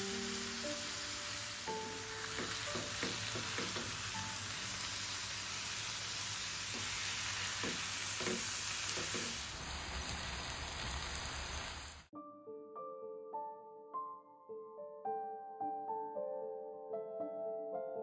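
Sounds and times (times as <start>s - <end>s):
curry sizzling in a hot pan: 0.0s - 12.1s.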